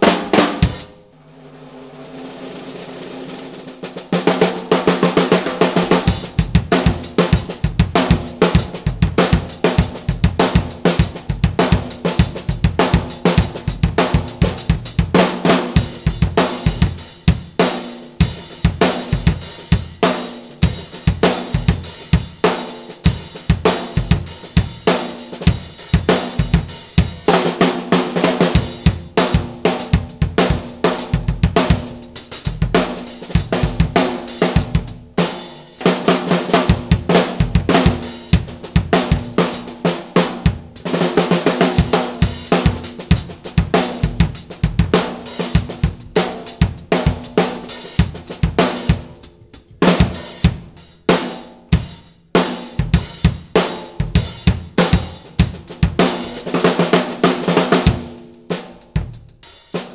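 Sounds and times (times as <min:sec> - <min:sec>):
low-tuned snare drum: 0:00.0 - 0:59.9
bass drum: 0:28.5 - 0:35.2, 0:35.8 - 0:39.7.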